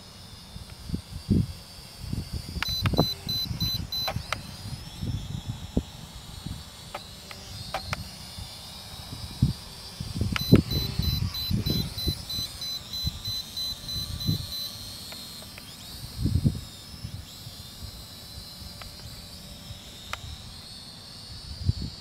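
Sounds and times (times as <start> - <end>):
rapid high electronic beeping: 2.6 - 4.2, 10.4 - 15.0.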